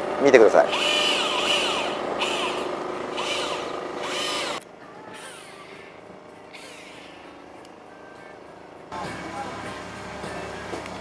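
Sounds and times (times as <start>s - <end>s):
electric fishing reel whirring: 0.7s - 4.6s, 6.5s - 7.4s.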